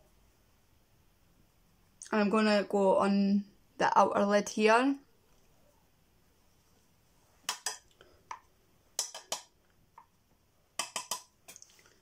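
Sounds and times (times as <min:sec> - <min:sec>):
makeup brush tapping palette: 0:07.5 - 0:10.1, 0:10.8 - 0:11.3.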